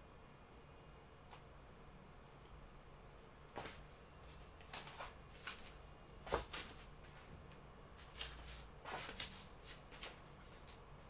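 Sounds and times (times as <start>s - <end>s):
rustling on exercise mat: 3.5s - 7.4s, 8.0s - 10.9s.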